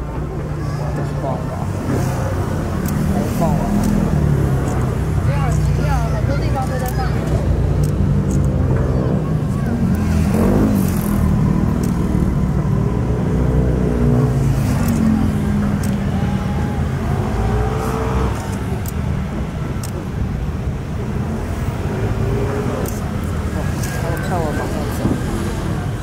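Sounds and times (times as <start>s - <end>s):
faint voices: 0.0s - 26.0s.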